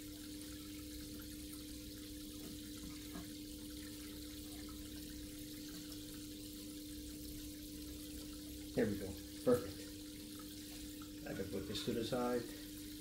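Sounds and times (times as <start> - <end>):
aquarium filter hum: 0.0 - 13.0
water hiss: 8.7 - 13.0.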